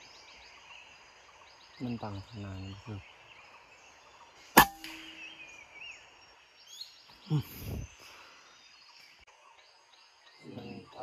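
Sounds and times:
birds chirping: 0.0 - 11.0
low voice: 7.3 - 7.9, 10.4 - 11.0.

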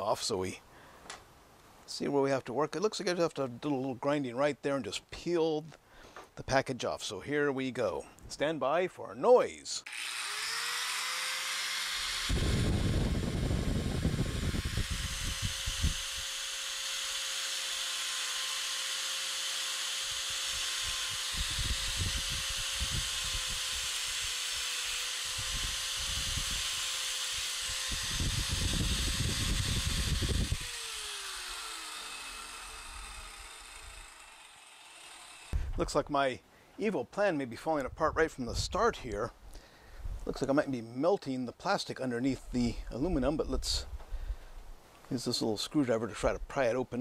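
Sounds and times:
motor winding down: 9.8 - 35.6
angle grinder whining: 9.8 - 35.8
grinder disc grinding metal tube: 9.8 - 36.0.

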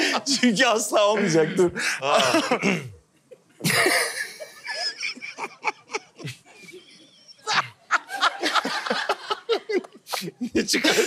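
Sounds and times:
people laughing hard: 2.0 - 2.8, 3.6 - 11.0
high wavering laugh: 3.6 - 11.0.

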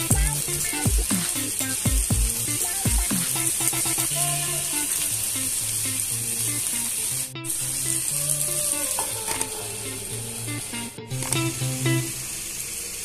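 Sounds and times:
background music: 0.0 - 5.6
food frying sizzle: 0.0 - 13.0.

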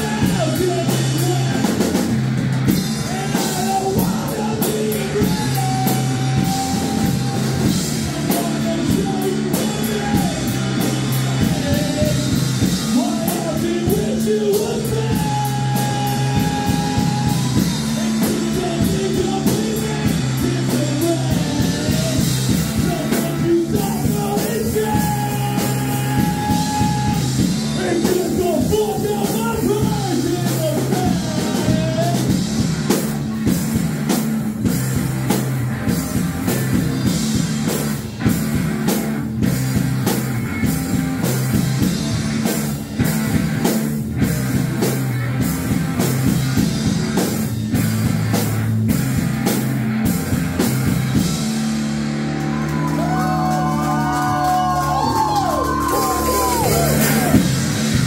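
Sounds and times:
man singing: 0.0 - 2.0, 2.9 - 32.7
rock band playing: 0.0 - 58.0.

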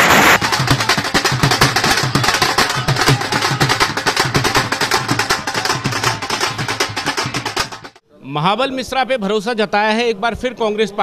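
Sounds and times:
dhol drum played fast: 0.0 - 8.0.

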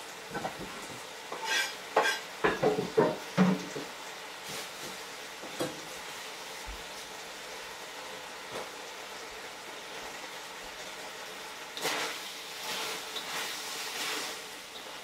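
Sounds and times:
chicken sizzling in a wok: 0.0 - 15.0
knife and cutting board clattering: 1.3 - 3.7.

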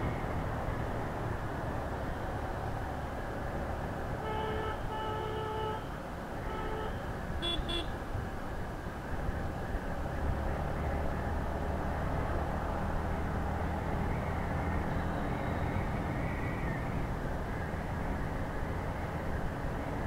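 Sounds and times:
wind and road noise: 0.0 - 20.0
vehicle horn: 4.2 - 8.0.

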